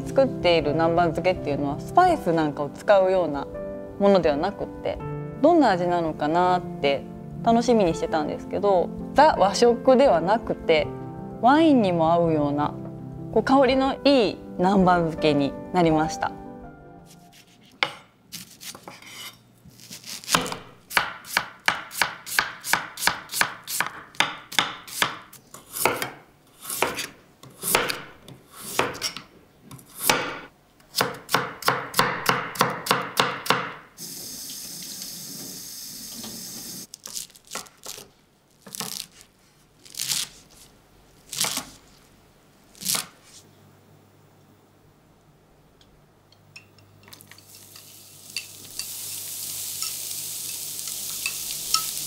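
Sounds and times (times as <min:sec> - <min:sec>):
knife chopping on wooden board: 0:17.1 - 0:33.8
steady hiss: 0:47.4 - 0:52.0.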